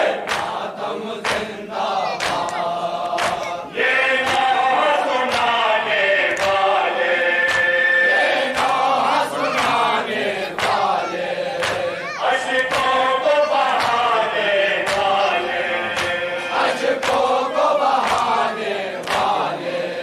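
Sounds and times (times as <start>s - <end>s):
men beating chests in unison: 0.0s - 19.8s
men chanting: 0.0s - 20.0s
man singing: 2.0s - 17.1s.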